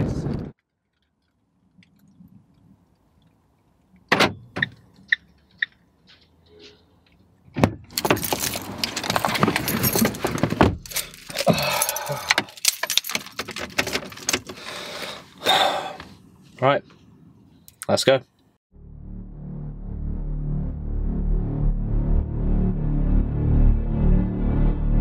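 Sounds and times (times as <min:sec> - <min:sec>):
thump: 0:07.6 - 0:07.9
clothing and seat rustling: 0:08.0 - 0:11.5
keys jangling: 0:08.0 - 0:14.5.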